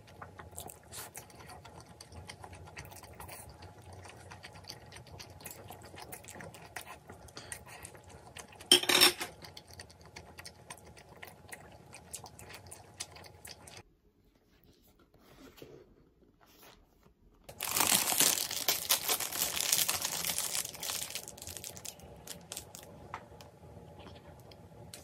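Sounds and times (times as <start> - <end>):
chewing: 0.0 - 8.7, 9.3 - 13.8.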